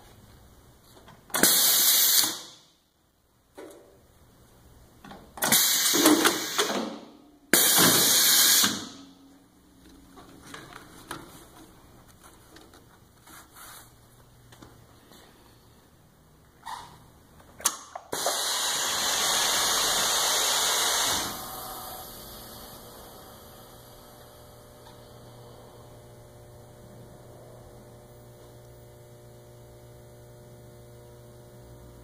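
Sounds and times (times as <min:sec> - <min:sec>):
compressed air blasts: 0:01.4 - 0:02.6, 0:05.4 - 0:09.0, 0:18.1 - 0:22.2.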